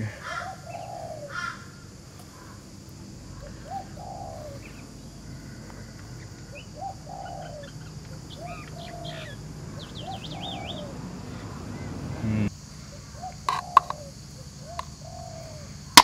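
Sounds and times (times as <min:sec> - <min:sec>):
bird lower call: 0:00.0 - 0:16.0
bird rising note: 0:03.3 - 0:12.5.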